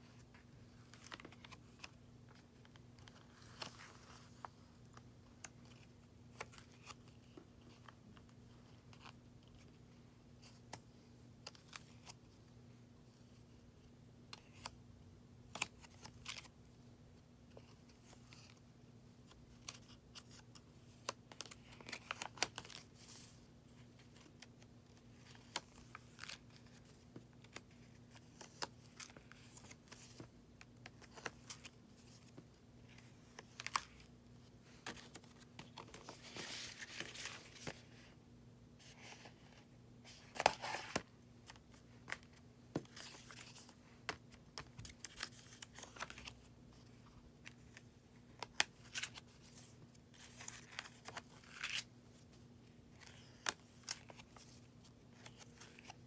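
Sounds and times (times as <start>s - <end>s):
paper pages rustling: 19.5s - 38.1s, 38.8s - 56.0s.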